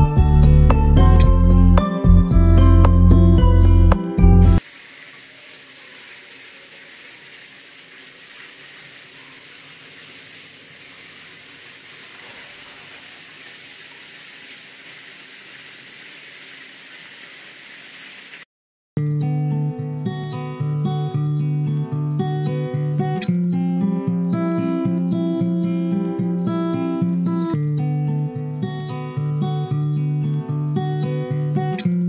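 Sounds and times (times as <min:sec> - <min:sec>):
shower spray hissing: 0:04.6 - 0:18.5.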